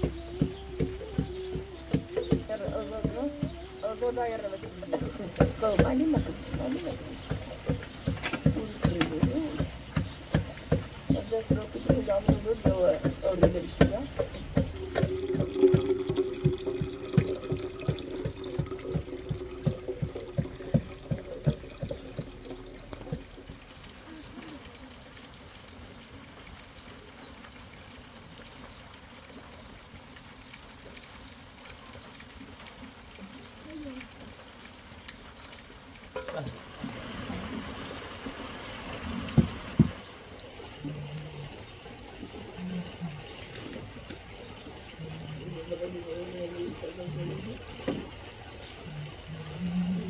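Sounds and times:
pot bubbling and hissing: 0.0s - 50.0s
tap water filling kettle: 4.6s - 23.8s, 39.2s - 40.0s
soft knocking: 4.7s - 23.7s.

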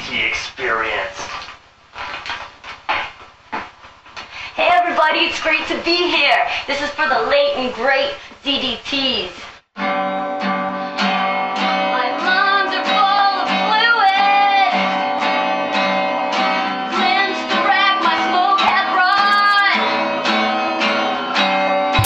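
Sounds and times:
acoustic guitar strumming: 9.8s - 22.0s.

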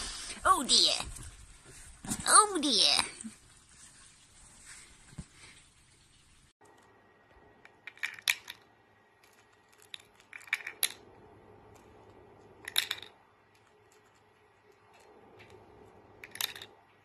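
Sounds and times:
plastic rings clicking and clattering: 7.6s - 11.1s, 12.6s - 15.6s, 16.2s - 17.0s.

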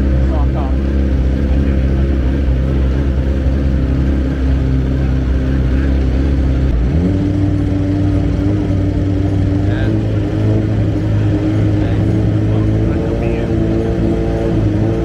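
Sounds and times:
motorcycle engine idling and revving: 0.0s - 15.0s.

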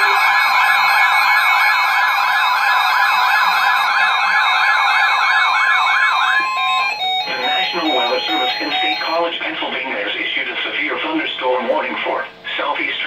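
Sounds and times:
warbling siren tone: 0.0s - 9.3s
steady alert tones: 0.0s - 9.4s.

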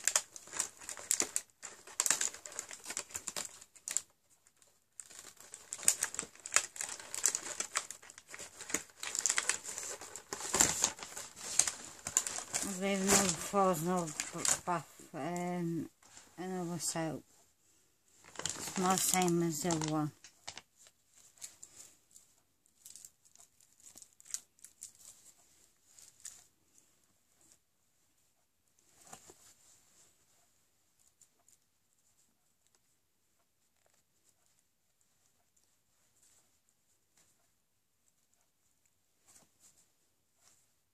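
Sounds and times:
cardboard and plastic crinkling: 0.0s - 17.0s, 18.1s - 27.6s, 28.8s - 30.1s.

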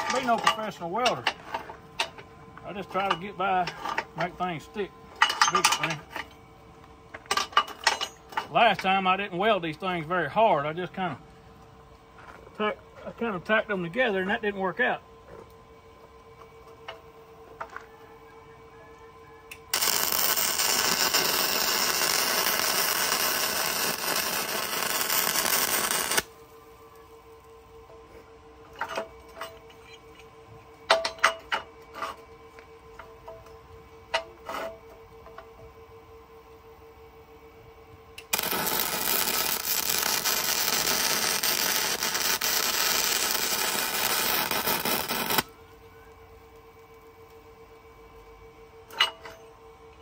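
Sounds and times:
welding arc crackling: 0.0s - 0.4s, 19.7s - 26.4s, 38.2s - 45.5s.

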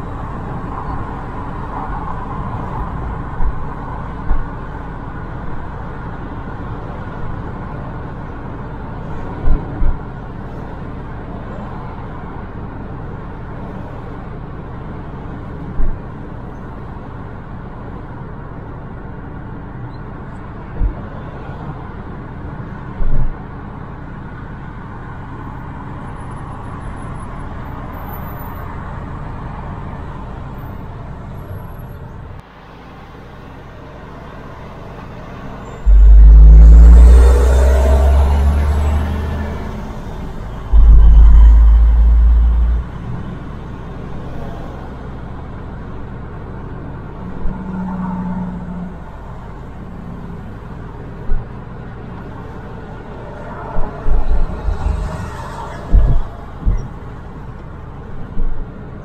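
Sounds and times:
road and tyre noise: 0.0s - 59.0s
car engine hum: 33.2s - 59.0s
low thumps: 35.8s - 39.0s, 40.5s - 43.1s, 54.1s - 55.2s, 55.9s - 56.9s.

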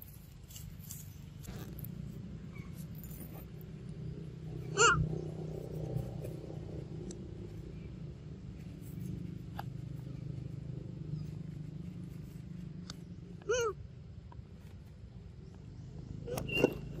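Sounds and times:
steady low rumble: 0.0s - 17.0s
monkey call rising and falling: 4.6s - 5.1s.

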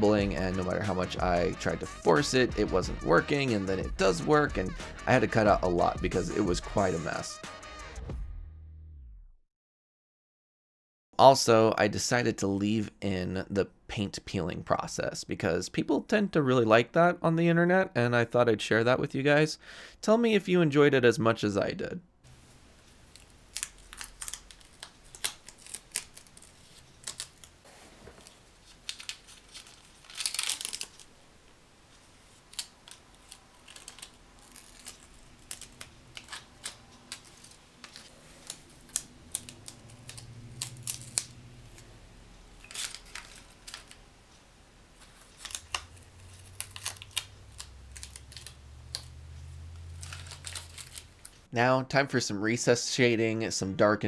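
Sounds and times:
tape ripping: 22.3s - 31.2s, 32.2s - 44.1s, 45.0s - 51.5s
tape peeling crackles: 22.3s - 51.5s.

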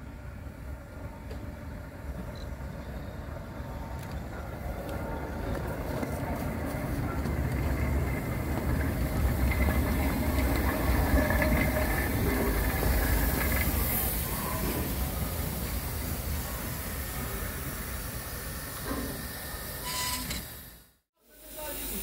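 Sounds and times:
train rumbling on rails: 0.0s - 20.7s
steam hissing: 5.3s - 22.0s
faint high squeals: 19.8s - 20.4s.

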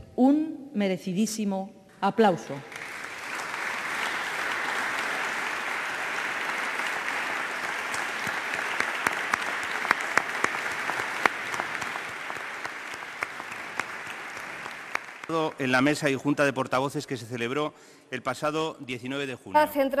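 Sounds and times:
audience applause: 2.7s - 16.1s.

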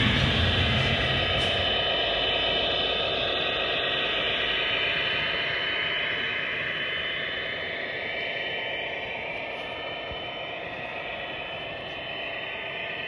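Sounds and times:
thin high whine: 0.0s - 2.8s
model train running hiss: 0.0s - 12.9s.

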